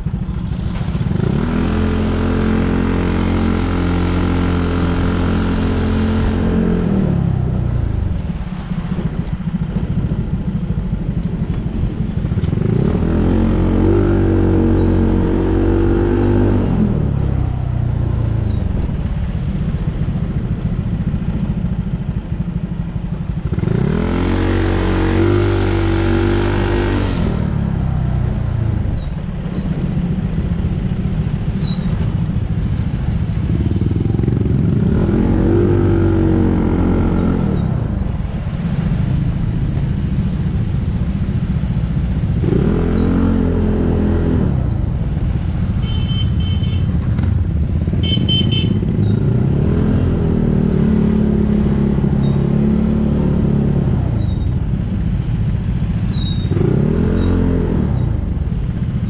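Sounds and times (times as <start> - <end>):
constant low rumble: 0.0 - 2.4, 4.8 - 12.9, 16.5 - 23.9, 26.9 - 42.5
vehicle engine revving: 0.4 - 7.6, 23.3 - 29.0, 56.1 - 58.8.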